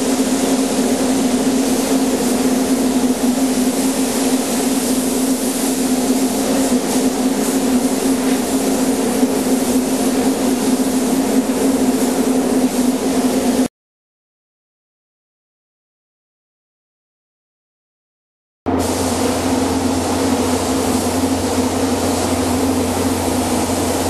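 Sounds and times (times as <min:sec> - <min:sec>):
spray gun hissing: 0:00.0 - 0:13.7, 0:18.7 - 0:24.0
ventilation fan humming: 0:00.0 - 0:13.7, 0:18.7 - 0:24.0.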